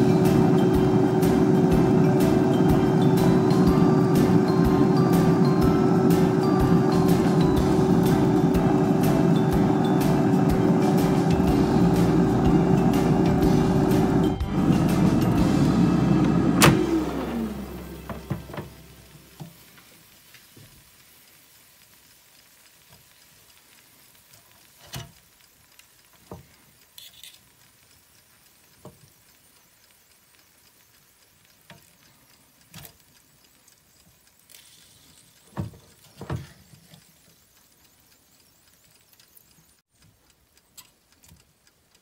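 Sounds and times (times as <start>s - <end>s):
fan winding down: 0.0s - 20.1s
faint meat sizzling: 0.0s - 42.0s.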